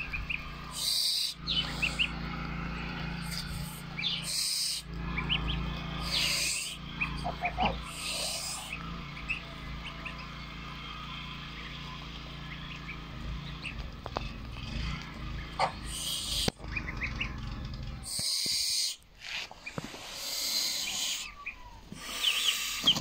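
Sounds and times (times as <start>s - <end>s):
goslings peeping: 0.0s - 23.0s
hissy bursts: 19.8s - 23.0s.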